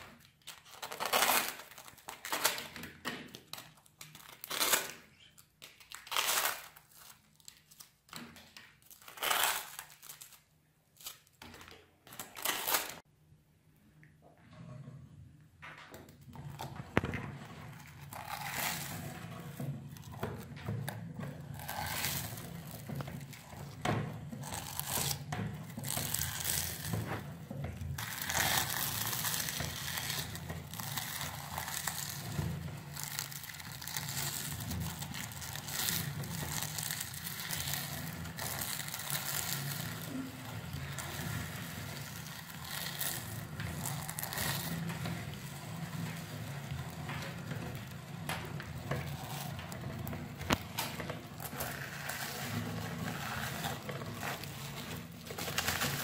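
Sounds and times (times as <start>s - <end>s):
meat grinder crunching wafers: 21.3s - 56.0s.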